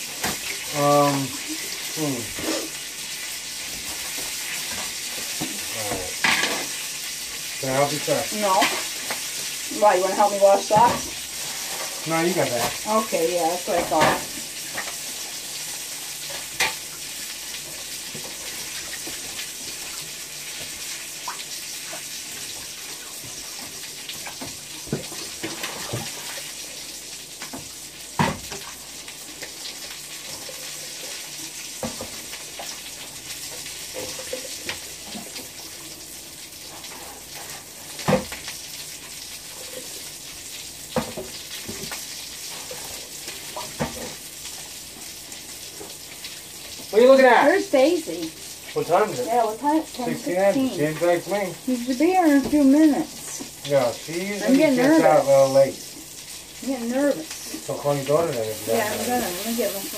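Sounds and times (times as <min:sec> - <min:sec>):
food sizzling in a pan: 0:00.0 - 0:59.9.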